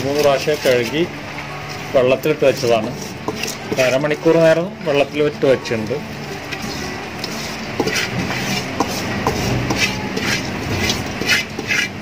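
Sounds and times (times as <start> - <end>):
rice scraped off steel bowl: 6.6 - 12.0.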